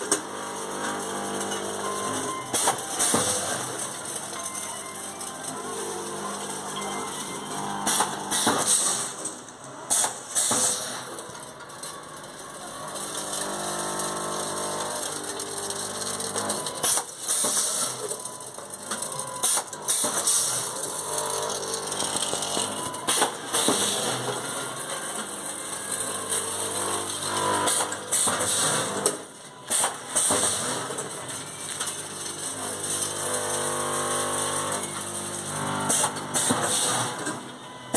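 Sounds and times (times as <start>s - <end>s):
packing machine humming: 0.0s - 37.9s
machine parts clicking and clacking: 6.3s - 33.2s.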